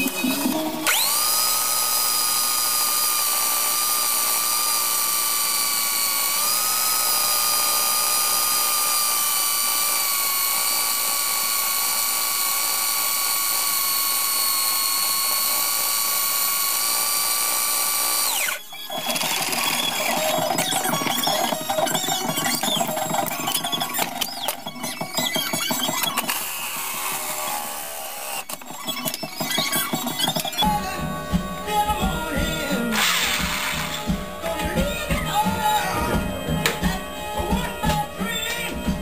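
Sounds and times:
electric drill whining: 0:00.0 - 0:39.0
rough uneven mechanical noise: 0:18.3 - 0:39.0.

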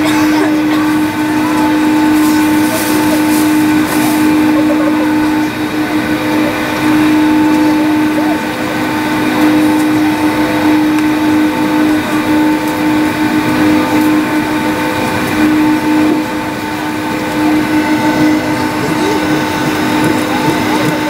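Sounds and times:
jet engines rushing hum in cabin: 0:00.0 - 0:21.0.

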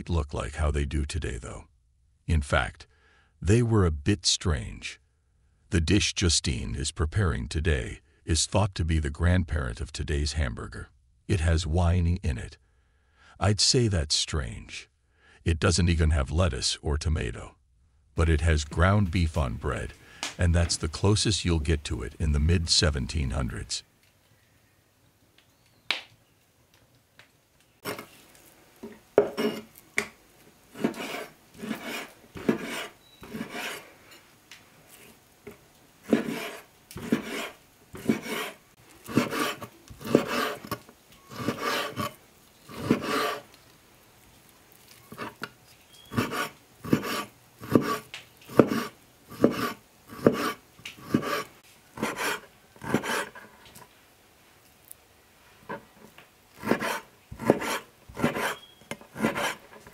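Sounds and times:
knife slicing meat on wooden board: 0:30.8 - 0:33.8, 0:36.0 - 0:43.4, 0:46.1 - 0:53.4, 0:56.6 - 0:59.9.

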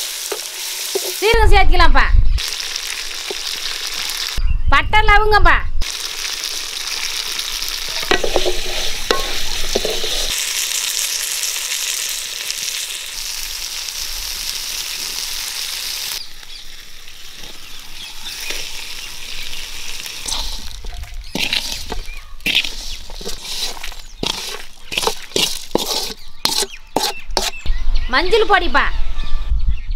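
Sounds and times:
food sizzling in a pan: 0:00.0 - 0:01.4, 0:02.4 - 0:04.4, 0:05.8 - 0:27.5
wooden spatula scraping a pan: 0:07.9 - 0:10.4, 0:20.2 - 0:27.6.

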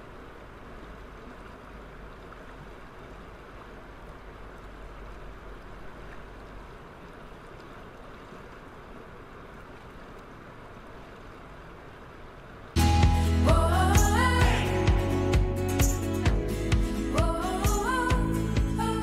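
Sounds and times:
music: 0:12.8 - 0:19.0.

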